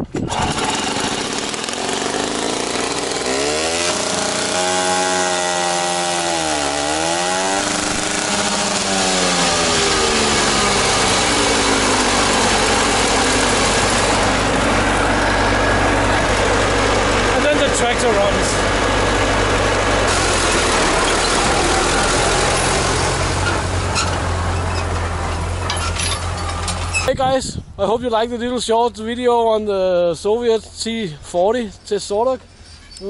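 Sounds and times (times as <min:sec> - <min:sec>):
two-stroke starter engine running: 0:00.1 - 0:27.0
diesel engine idling: 0:06.6 - 0:27.0.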